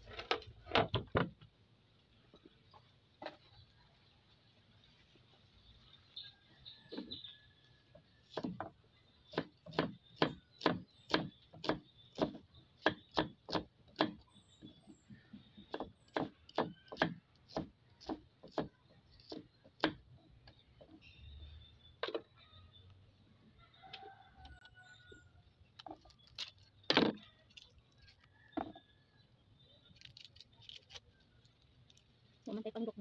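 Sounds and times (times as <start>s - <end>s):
knife chopping on wooden block: 9.3s - 14.2s.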